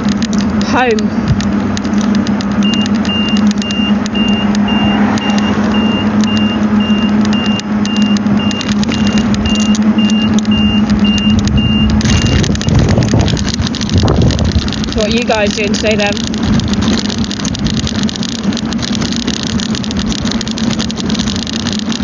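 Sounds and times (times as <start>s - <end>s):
low engine hum: 0.0s - 22.0s
rush of noise: 0.0s - 22.0s
car warning beeper short beeps: 2.6s - 12.8s.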